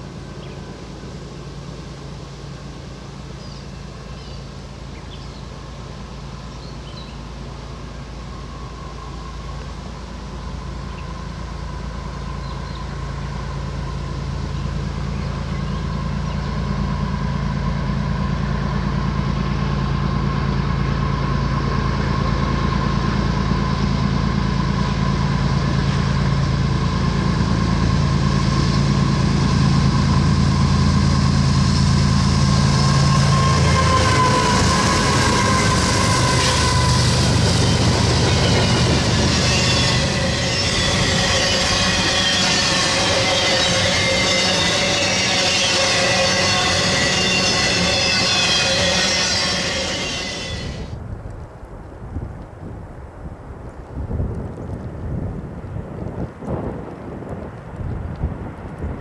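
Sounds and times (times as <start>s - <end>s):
diesel locomotive engine drone: 0.0s - 59.0s
wheels on rails squealing: 8.2s - 51.0s.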